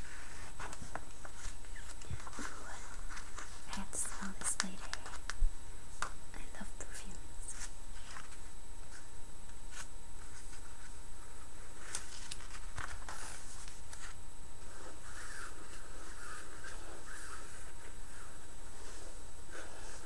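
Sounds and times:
steady low hum: 0.0s - 20.0s
magazine pages rustling: 9.7s - 20.0s.

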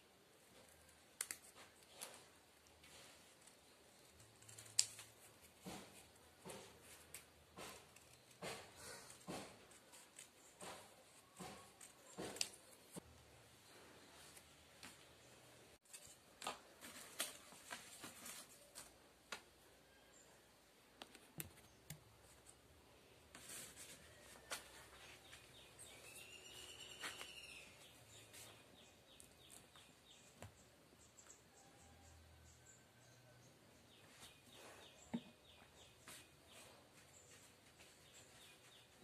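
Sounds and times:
bird chirp: 24.2s - 39.0s.

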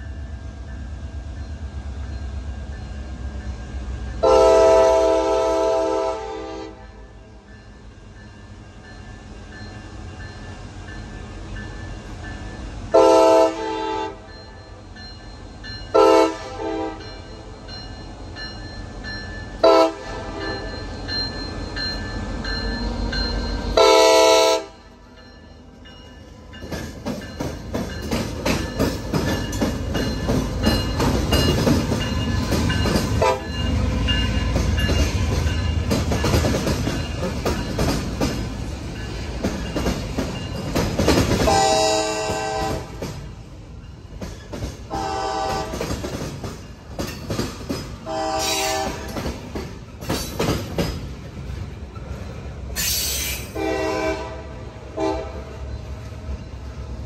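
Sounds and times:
train cars rumbling past: 0.0s - 57.0s
locomotive horn blasts: 4.2s - 7.0s, 12.9s - 14.3s, 15.9s - 17.1s, 19.6s - 20.6s, 23.8s - 24.9s, 33.2s - 33.6s, 41.5s - 43.0s, 44.9s - 45.9s, 48.0s - 49.2s, 53.5s - 55.6s
clattering train wheels: 24.9s - 54.0s.

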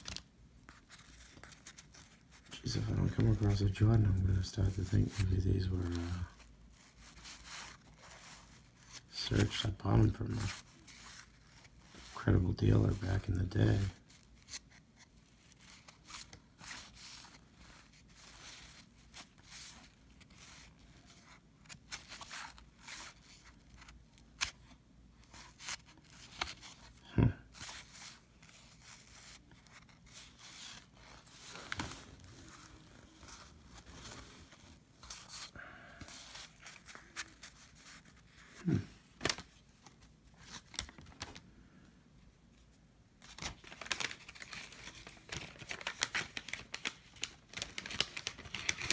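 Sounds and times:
cards rustling and sliding: 0.0s - 41.4s, 43.2s - 48.9s.

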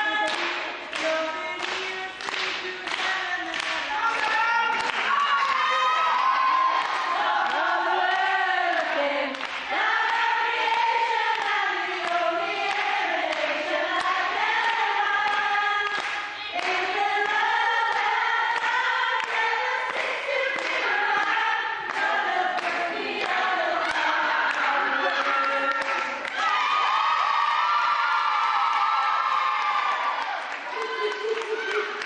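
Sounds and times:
woman singing unaccompanied: 0.0s - 5.6s.

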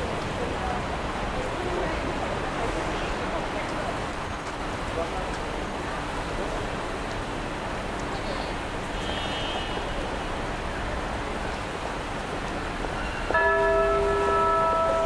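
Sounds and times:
city street traffic: 0.0s - 15.0s
clock tower bell chime: 13.3s - 15.0s.

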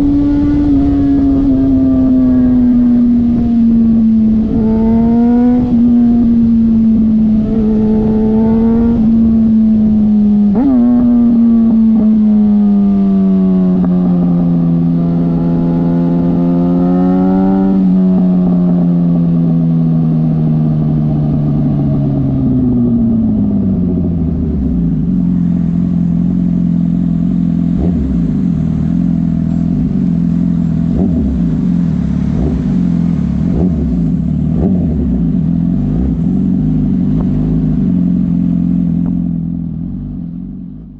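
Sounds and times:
motorcycle engine cruising: 0.0s - 40.9s.

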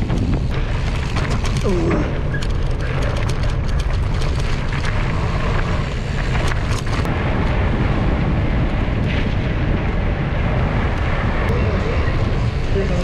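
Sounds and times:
sharp clicks and rattles: 0.0s - 7.6s
wind buffeting microphone: 0.0s - 13.0s.

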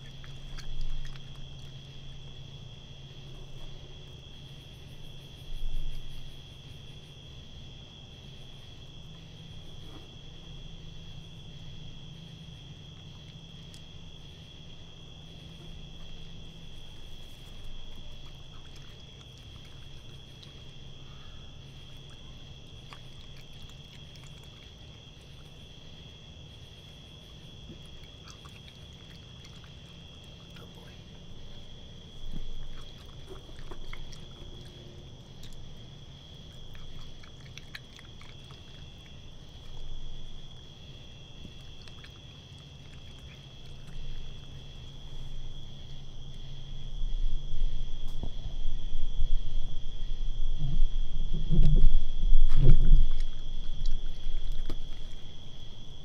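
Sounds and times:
insect trill: 0.0s - 56.0s
low steady hum: 0.0s - 56.0s
raccoon chewing: 0.0s - 56.0s.

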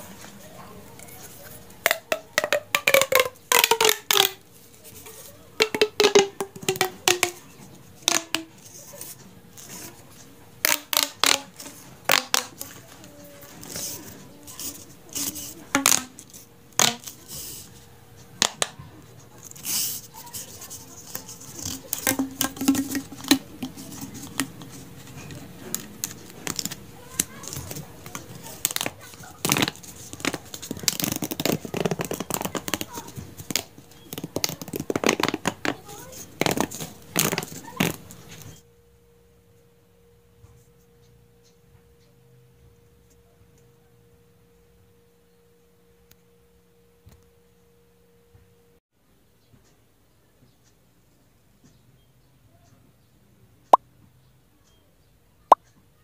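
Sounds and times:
faint steady hum: 0.0s - 56.0s
plastic tubes clicking and crackling: 0.9s - 38.5s.

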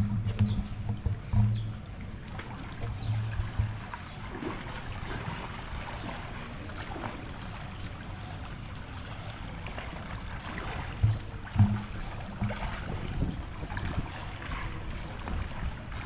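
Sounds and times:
low thump: 0.0s - 1.8s, 3.1s - 4.0s, 11.0s - 12.9s
pool water lapping and splashing: 0.0s - 16.0s.

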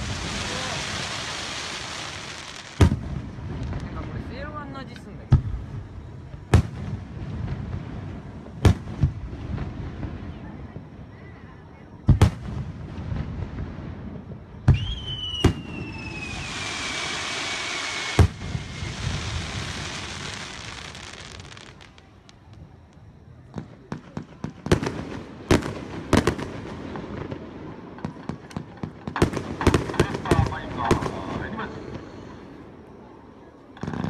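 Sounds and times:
falling firework whistle: 0.0s - 3.1s, 14.6s - 26.6s
crackling firework pops: 0.0s - 4.1s, 4.9s - 5.7s, 6.4s - 10.2s, 12.0s - 13.7s, 14.6s - 32.1s
firework hissing: 0.0s - 10.2s, 12.3s - 22.8s
fireworks bursting with loud bangs: 0.0s - 34.0s.

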